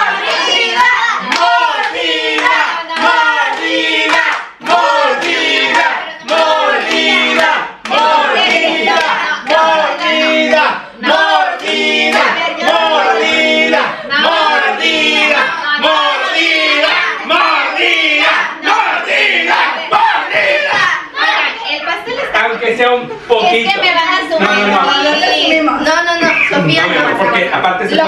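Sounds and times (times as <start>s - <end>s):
group singing together: 0.0s - 28.0s
hand clapping: 1.2s - 9.7s.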